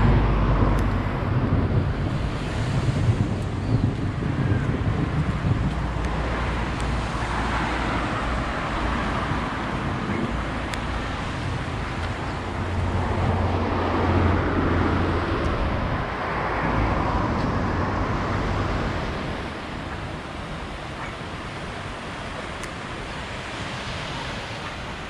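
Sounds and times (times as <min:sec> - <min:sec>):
car passing: 0:05.4 - 0:22.4.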